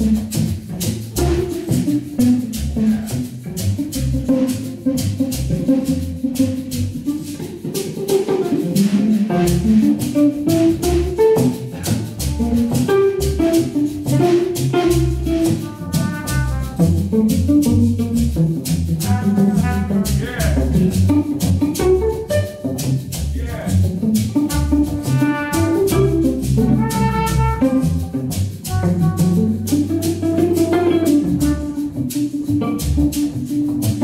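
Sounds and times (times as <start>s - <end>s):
drum kit with cymbals: 0.0s - 34.0s
guitar playing: 0.0s - 34.0s
brass horn phrases: 15.6s - 17.0s, 19.0s - 20.7s, 24.4s - 28.0s, 28.7s - 29.7s.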